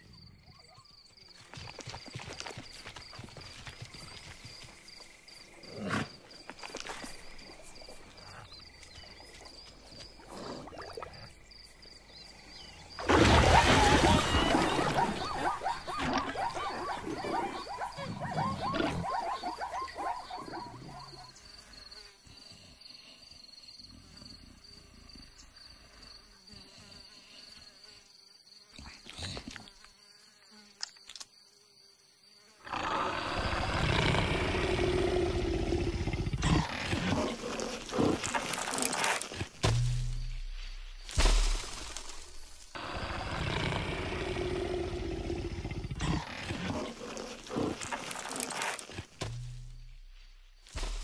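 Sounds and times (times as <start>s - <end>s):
animal noises: 2.3s - 22.8s, 32.4s - 39.7s, 42.7s - 49.3s
thin insect buzz: 20.3s - 33.2s, 36.4s - 42.9s, 46.0s - 51.0s
big cat growl: 32.6s - 39.2s, 42.8s - 49.1s.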